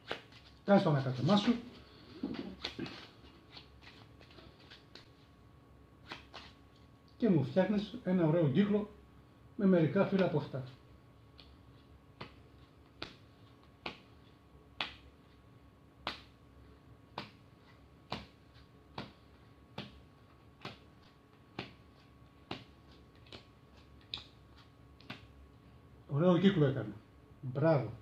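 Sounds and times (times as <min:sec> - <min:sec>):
playing cards snapping on felt: 0:00.0 - 0:00.5, 0:12.2 - 0:14.1, 0:14.7 - 0:15.2, 0:16.0 - 0:16.4, 0:17.1 - 0:17.4, 0:18.0 - 0:25.4.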